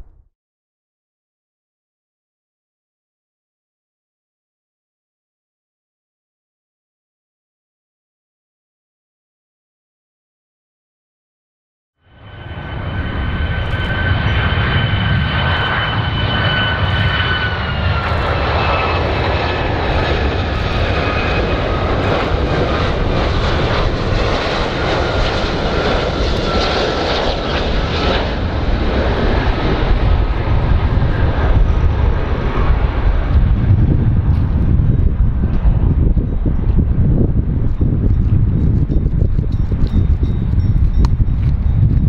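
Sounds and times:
jet airliner passing: 0:12.0 - 0:42.0.

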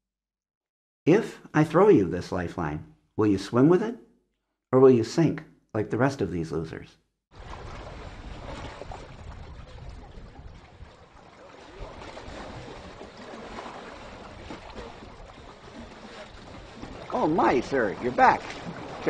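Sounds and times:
wind: 0:07.3 - 0:19.0
water washing: 0:07.4 - 0:19.0.

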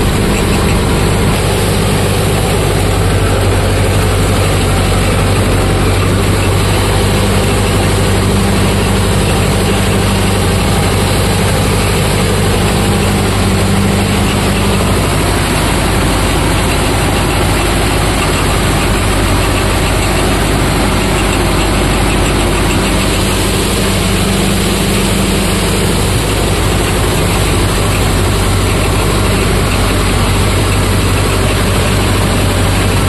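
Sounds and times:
tractor diesel engine running: 0:00.0 - 0:33.0.

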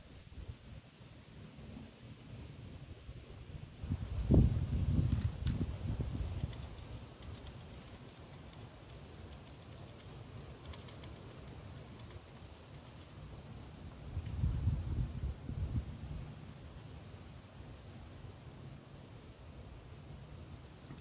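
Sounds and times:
wind buffeting microphone: 0:03.8 - 0:07.4, 0:14.0 - 0:16.3.

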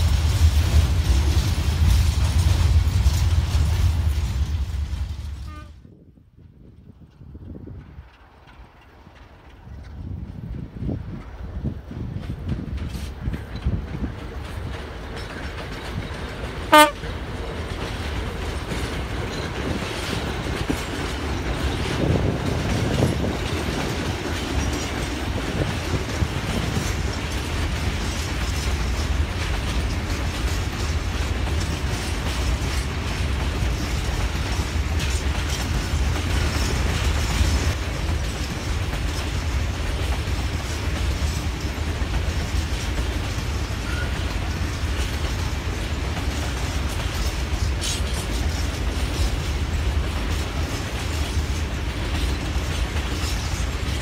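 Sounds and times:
train wheels rumbling on rails: 0:00.0 - 0:54.0
locomotive horn toot: 0:05.4 - 0:05.9, 0:16.7 - 0:17.1.

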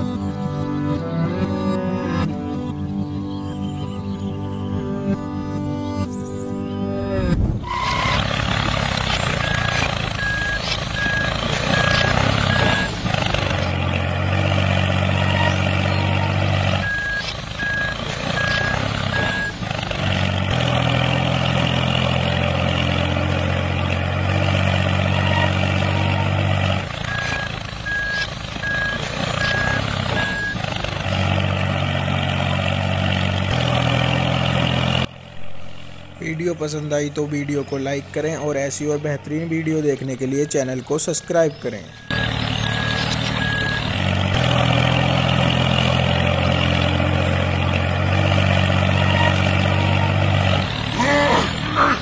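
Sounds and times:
heavy vehicle engine running: 0:00.0 - 0:52.0
reversing alarm beeping: 0:09.4 - 0:13.0, 0:15.0 - 0:19.6, 0:27.1 - 0:30.6, 0:39.8 - 0:44.0.

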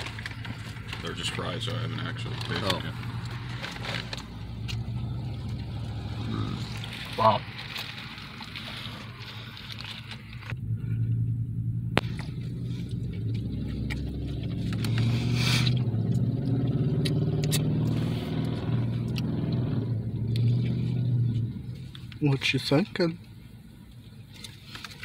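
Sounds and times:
car engine hum inside cabin: 0:00.0 - 0:25.0.

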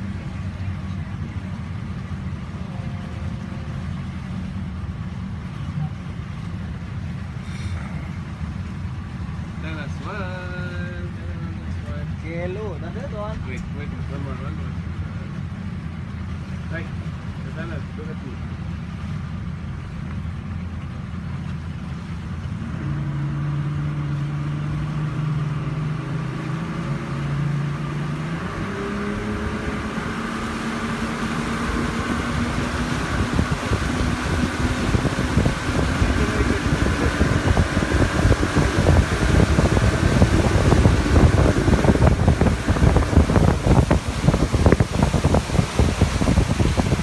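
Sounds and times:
rushing water: 0:00.0 - 0:47.0
speedboat engine running: 0:00.0 - 0:47.0
wind buffeting microphone: 0:23.1 - 0:47.0.

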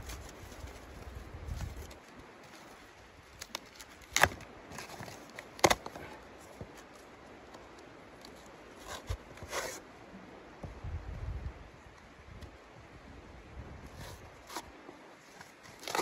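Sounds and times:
cardboard tearing and rustling: 0:00.0 - 0:06.0, 0:15.4 - 0:16.0
cardboard ripping: 0:03.4 - 0:06.0, 0:15.7 - 0:16.0.

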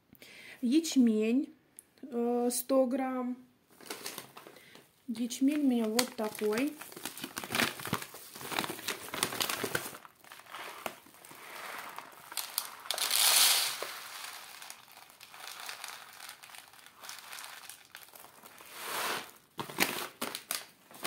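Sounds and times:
paper bag crinkling: 0:03.8 - 0:04.5, 0:05.2 - 0:21.0
grain pouring into tray: 0:10.3 - 0:19.4.

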